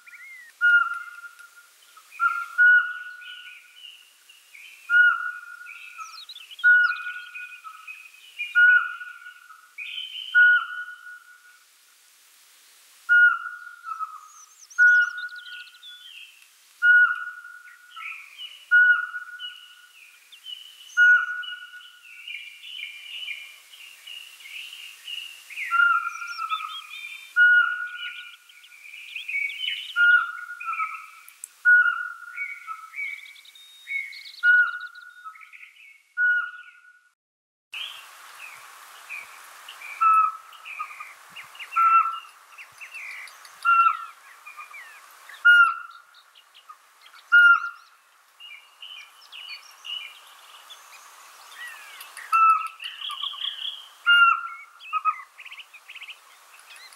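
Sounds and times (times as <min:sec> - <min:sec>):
owl whistling calls: 0:00.0 - 0:03.7, 0:04.9 - 0:11.6, 0:13.1 - 0:16.0, 0:16.8 - 0:19.9, 0:20.9 - 0:22.0, 0:25.6 - 0:28.4, 0:29.2 - 0:33.2, 0:33.8 - 0:35.5, 0:36.2 - 0:36.9, 0:39.9 - 0:42.3, 0:43.0 - 0:46.0, 0:47.2 - 0:47.8, 0:51.6 - 0:55.3
birds chirping: 0:00.0 - 0:11.6, 0:13.1 - 0:37.1, 0:37.8 - 0:56.9.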